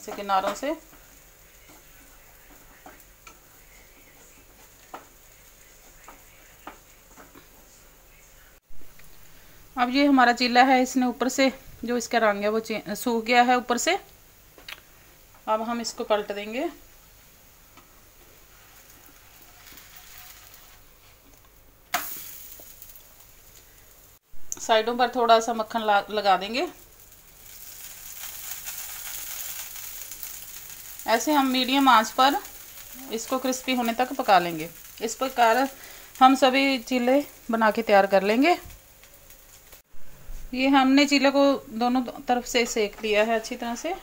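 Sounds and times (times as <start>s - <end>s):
batter frying hiss: 0.0s - 44.0s
spatula scraping a pan: 18.4s - 21.2s.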